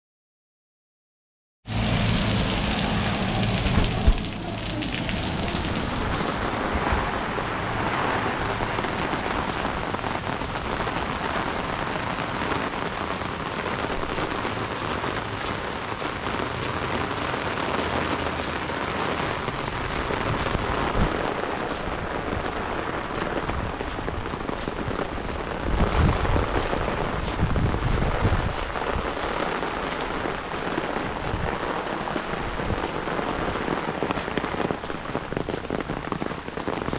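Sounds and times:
low rumbles: 1.7 - 29.3
heavy rain on lawn: 1.7 - 36.9.

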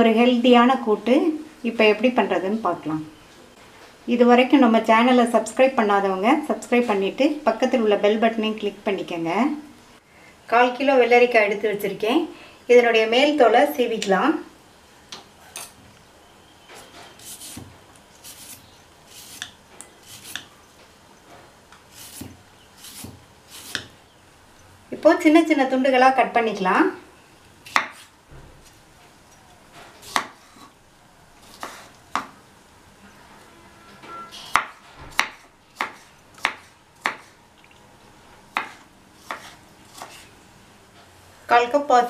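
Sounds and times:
peeler scraping cucumber skin: 17.2 - 20.5, 21.9 - 23.9
knife chopping on wooden board: 22.0 - 23.9, 27.7 - 28.1, 30.0 - 30.7, 31.4 - 32.4, 34.5 - 37.4, 38.5 - 40.2.

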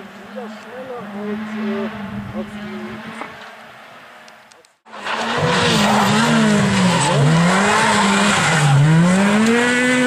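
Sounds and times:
rally car engine at high revs: 1.0 - 3.5, 4.9 - 10.0.

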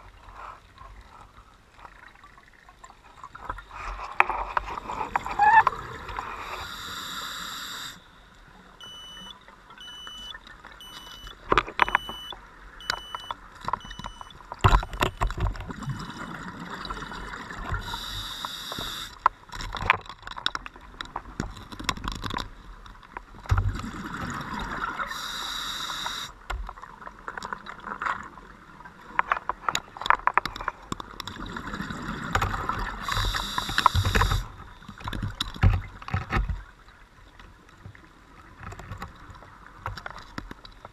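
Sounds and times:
hissing regulator inhalation: 6.4 - 8.0, 17.8 - 19.2, 25.1 - 26.3, 33.1 - 34.5.

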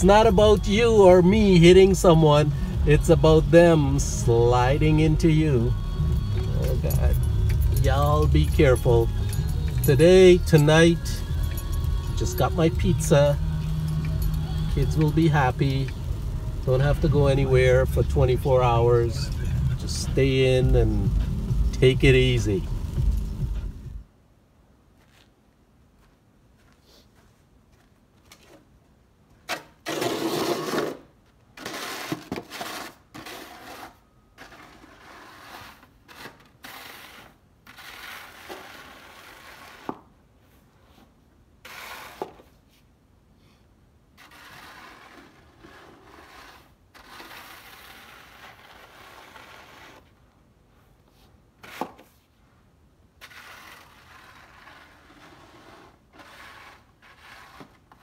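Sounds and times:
snow shovel scraping ice: 29.8 - 40.1, 41.6 - 42.6, 44.2 - 50.2, 51.6 - 52.2, 53.2 - 58.0.

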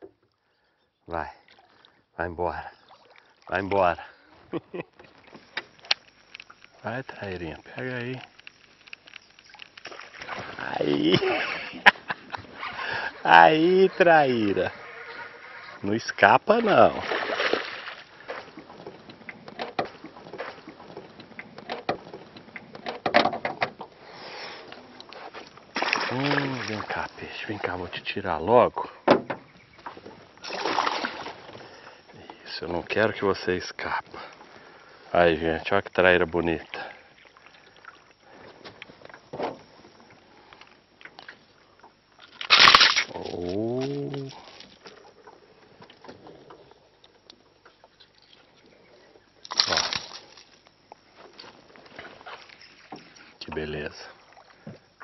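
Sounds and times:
fish thrashing and splashing: 8.3 - 13.3, 16.7 - 21.5, 25.5 - 27.2, 30.2 - 31.8, 42.2 - 45.1, 49.4 - 50.9
light clicks and knocks: 18.3 - 23.9.

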